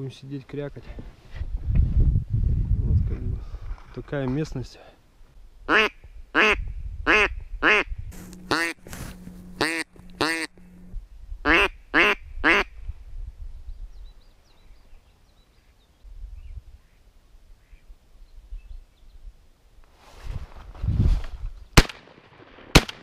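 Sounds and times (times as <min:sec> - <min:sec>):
duck call quacks: 0:05.7 - 0:07.9, 0:08.5 - 0:08.8, 0:09.6 - 0:10.5, 0:11.5 - 0:12.7
faint bird chirps: 0:13.5 - 0:19.3.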